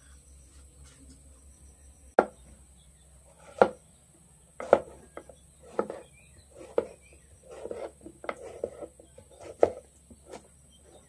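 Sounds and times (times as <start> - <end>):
knife chopping on a chopping board: 3.4 - 3.8, 4.6 - 10.4.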